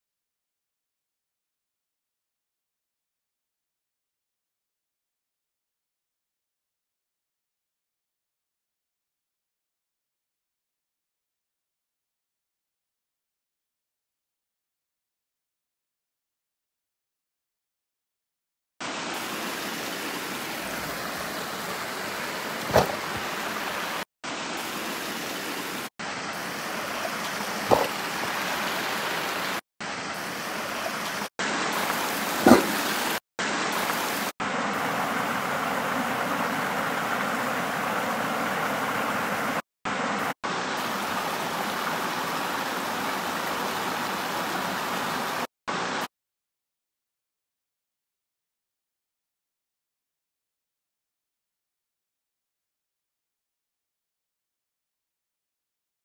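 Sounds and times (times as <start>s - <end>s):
creek running over rocks: 18.8s - 46.1s
sharp knocks: 22.7s - 23.3s, 27.7s - 28.0s, 32.4s - 33.0s.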